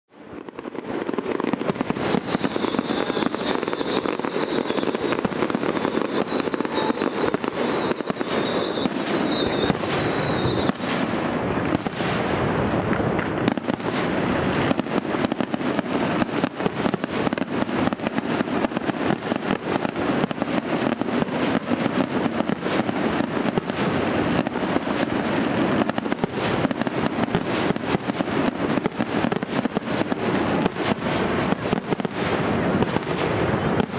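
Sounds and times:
fireworks bangs and crackles: 0.1 - 33.9
high steady whistle: 2.0 - 10.9.

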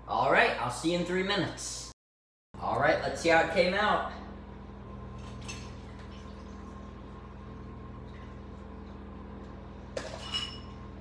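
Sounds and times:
steady low hum: 2.6 - 11.0.

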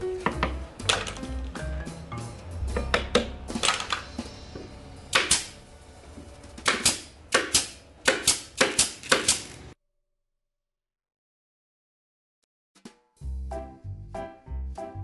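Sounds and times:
nail gun firing: 5.1 - 5.5, 6.6 - 9.6.

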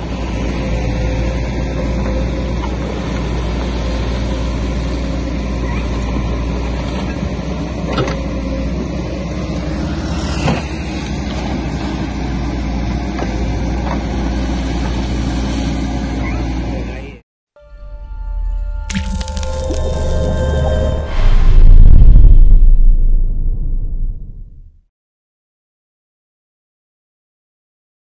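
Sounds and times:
backhoe diesel engine running: 0.0 - 17.1.

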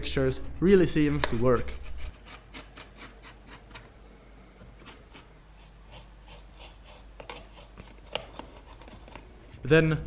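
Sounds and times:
paintbrush scratching cardboard: 4.8 - 9.2.

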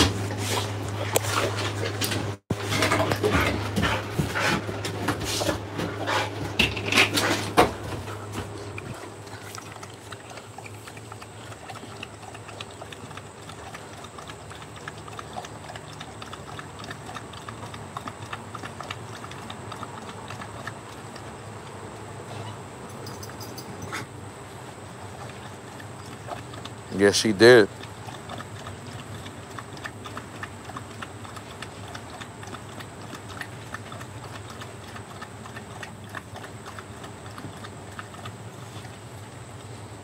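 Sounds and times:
dog lapping water: 0.0 - 40.0.

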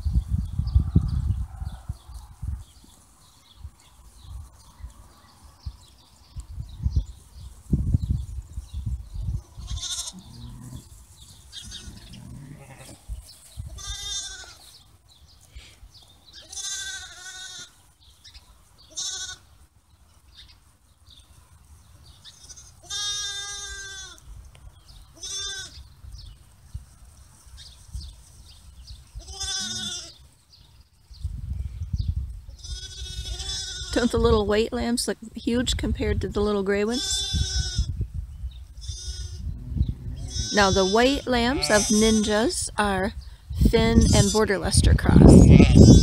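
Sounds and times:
sheep bleating: 9.6 - 10.8, 11.6 - 13.0, 13.8 - 14.7, 16.4 - 17.7, 18.9 - 19.4, 22.3 - 24.2, 25.2 - 25.8, 29.2 - 30.2, 32.6 - 33.9, 38.8 - 42.5, 45.4 - 46.0.

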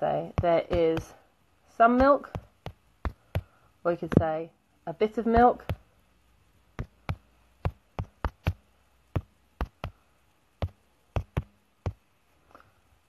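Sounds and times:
sharp taps or clicks: 0.3 - 1.1, 2.0 - 3.5, 5.4 - 5.8, 6.8 - 8.6, 9.2 - 10.0, 10.6 - 12.0.

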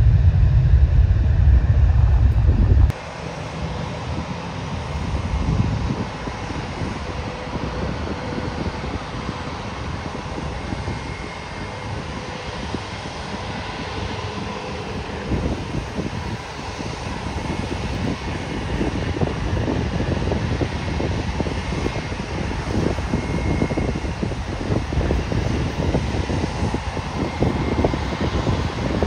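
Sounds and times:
distant jet engines rumbling: 0.0 - 29.0
wind buffeting microphone: 0.0 - 29.0.

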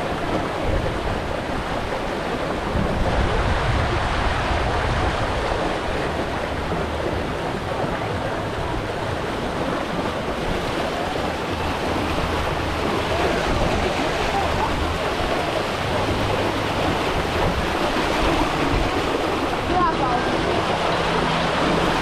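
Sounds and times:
flowing splashing water: 0.0 - 22.0.

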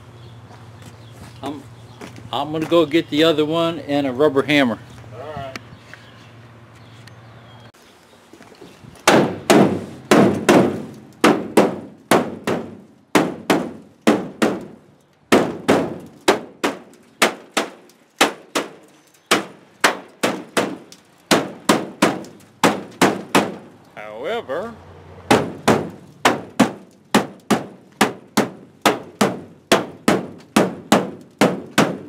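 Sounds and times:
truck body ringing: 9.0 - 23.8, 25.3 - 32.0.

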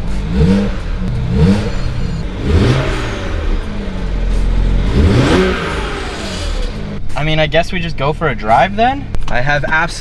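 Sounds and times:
car engine revving and idling: 0.0 - 7.2.

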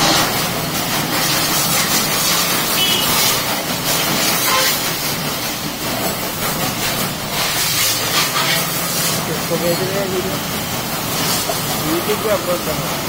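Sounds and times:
pressure washer spray hiss: 0.0 - 13.0.

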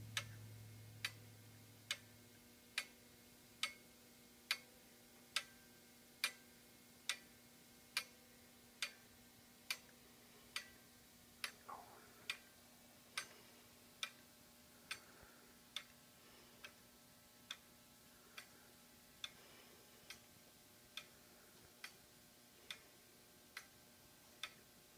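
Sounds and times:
clockwork ticking: 0.0 - 0.4, 1.0 - 1.2, 1.9 - 3.0, 3.6 - 3.9, 4.5 - 4.7, 5.3 - 7.3, 7.9 - 8.2, 8.8 - 9.0, 9.6 - 9.9, 10.5 - 10.8, 11.4 - 12.5, 14.8 - 15.1, 15.7 - 15.9, 17.4 - 17.7, 18.3 - 18.6, 20.9 - 22.0, 22.6 - 22.8, 23.5 - 23.8, 24.4 - 24.7.

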